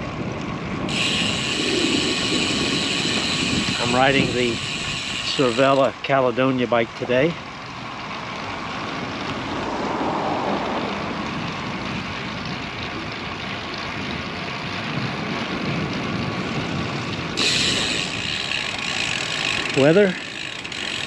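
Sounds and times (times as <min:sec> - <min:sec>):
wind rush over microphone: 0:00.0 - 0:05.6, 0:09.3 - 0:13.1, 0:13.9 - 0:20.1
bike tyres rolling on asphalt: 0:00.0 - 0:21.0.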